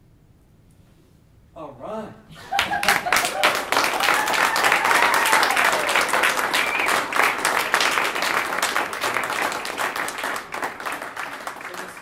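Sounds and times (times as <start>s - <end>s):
audience applause: 2.4s - 12.0s.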